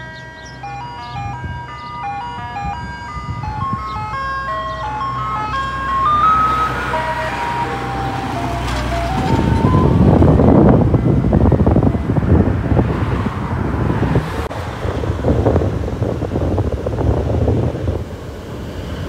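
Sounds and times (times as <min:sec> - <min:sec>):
ice cream truck chime jingle: 0:00.0 - 0:10.9
truck engine running: 0:00.0 - 0:12.6.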